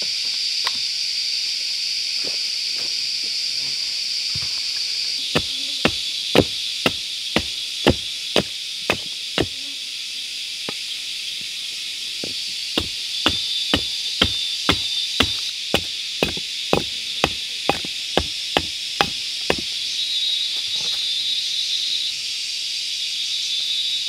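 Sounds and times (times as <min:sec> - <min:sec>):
high insect buzz: 0:00.0 - 0:24.0
hatchet chopping wood: 0:05.3 - 0:09.6, 0:12.2 - 0:19.7.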